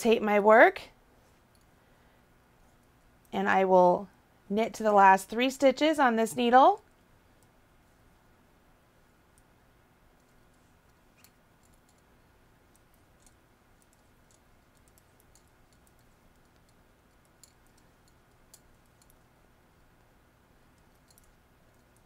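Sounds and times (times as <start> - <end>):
knitting needles clicking: 10.1 - 22.0.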